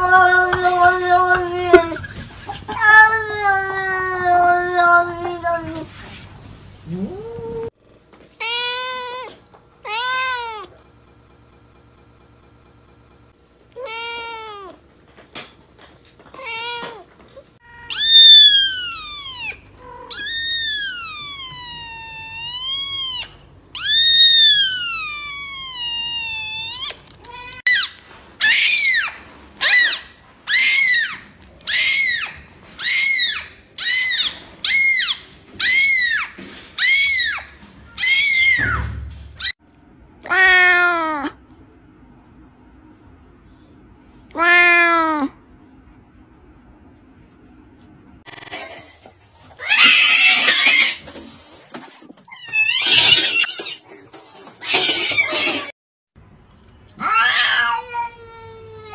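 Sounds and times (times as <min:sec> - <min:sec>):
cats meowing: 0:00.0 - 0:06.0, 0:08.4 - 0:10.8, 0:13.7 - 0:14.8, 0:16.3 - 0:39.6, 0:44.3 - 0:45.4, 0:49.5 - 0:51.2, 0:52.2 - 0:55.7, 0:57.0 - 0:58.9
kitten mewing: 0:17.8 - 0:27.8.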